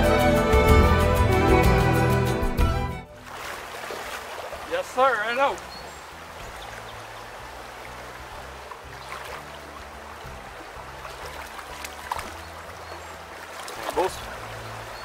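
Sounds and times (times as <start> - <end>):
brook water running over stones: 3.1 - 15.0.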